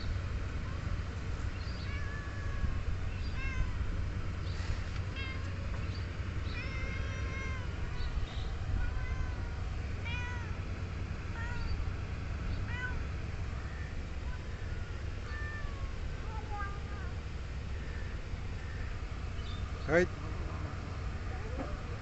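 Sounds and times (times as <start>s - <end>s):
steady low rumble: 0.0s - 22.0s
kittens meowing: 1.7s - 4.1s, 5.1s - 10.6s, 11.3s - 11.8s, 12.6s - 17.1s.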